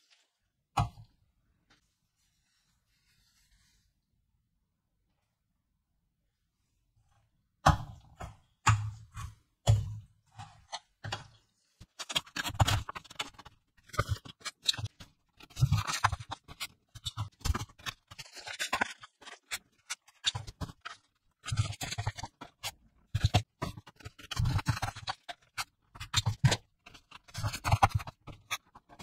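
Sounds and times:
paper rustling and scraping: 0:10.4 - 0:29.0.

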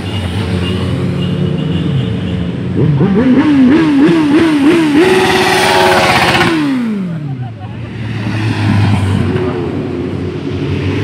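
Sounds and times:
motorcycle engine revving: 0:02.6 - 0:07.4.

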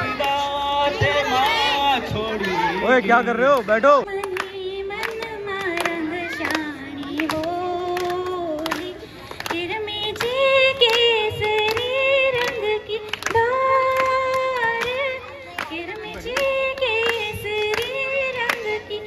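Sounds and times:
hands clapping in time: 0:00.1 - 0:00.5, 0:03.4 - 0:19.0
woman singing devotional song: 0:04.0 - 0:19.0.

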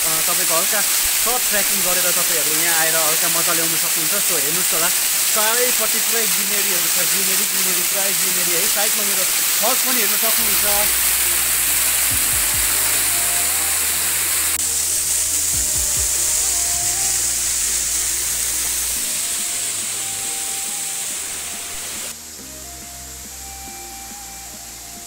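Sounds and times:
waterfall rushing: 0:00.0 - 0:25.0
music with bass notes and melody: 0:10.4 - 0:25.0.

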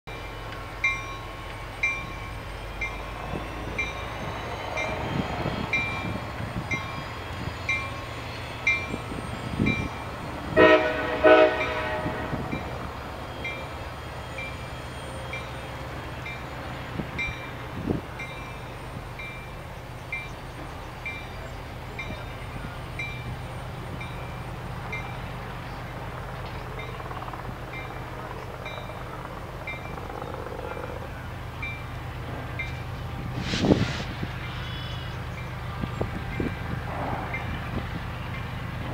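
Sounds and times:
distant locomotive horn blasts: 0:07.4 - 0:13.8.

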